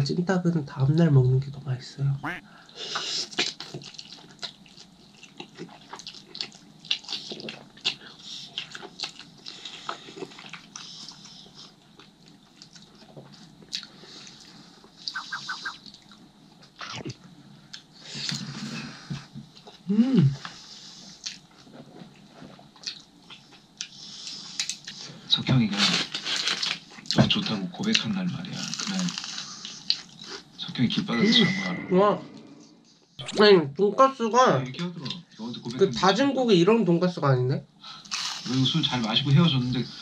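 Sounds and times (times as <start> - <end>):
person humming: 2.2 - 2.4.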